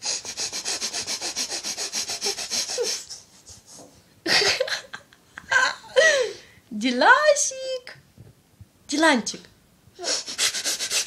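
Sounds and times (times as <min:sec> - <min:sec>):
snuffling nose puffs: 0:00.0 - 0:03.9, 0:10.1 - 0:11.0.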